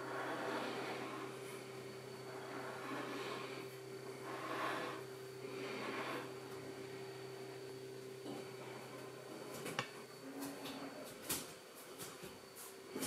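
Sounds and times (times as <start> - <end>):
soft breaths: 0.0 - 7.4
low hum: 0.0 - 11.0
faint high whine: 0.0 - 13.0.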